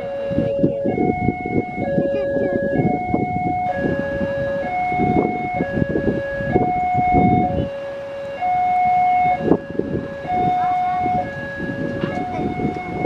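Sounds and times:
traffic engines idling: 0:00.0 - 0:13.0
two-tone crossing alarm: 0:00.0 - 0:13.0.

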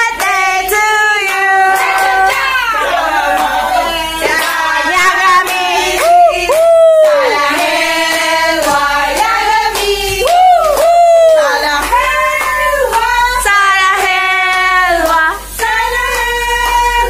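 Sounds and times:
hand clapping: 0:00.0 - 0:00.4, 0:03.4 - 0:13.1, 0:14.0 - 0:17.0
women singing together: 0:00.0 - 0:17.0.

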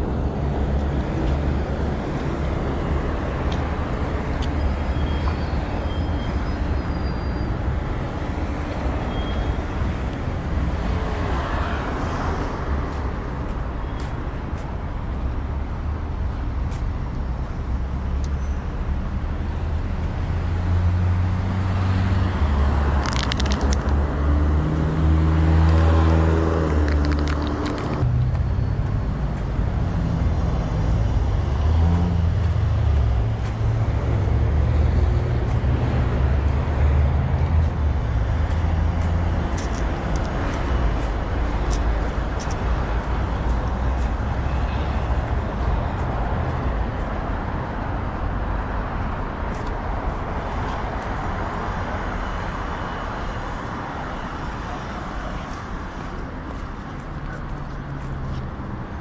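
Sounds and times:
road traffic rumble: 0:00.0 - 0:59.0.

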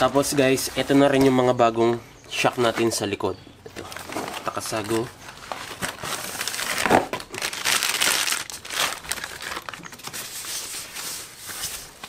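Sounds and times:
packaging crinkling and rustling: 0:03.7 - 0:12.0.

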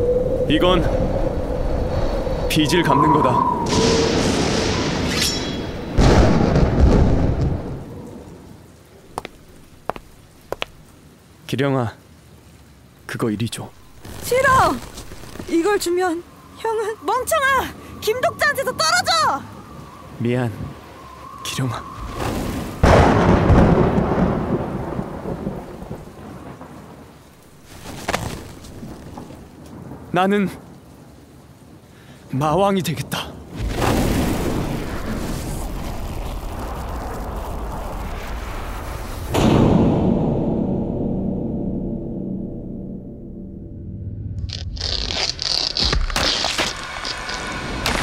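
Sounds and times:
thunder-like rumbling boom: 0:03.4 - 0:05.1, 0:05.7 - 0:07.9, 0:22.0 - 0:26.6, 0:33.6 - 0:44.4.

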